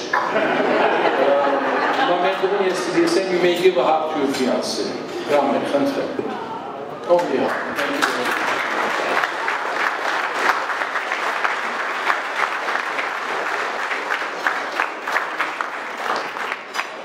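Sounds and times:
crowd applauding: 7.1s - 17.0s.

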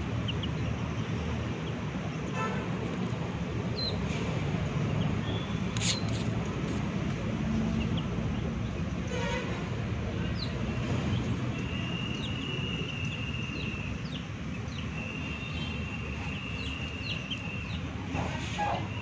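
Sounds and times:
chicks peeping: 0.0s - 9.1s, 9.7s - 19.0s.

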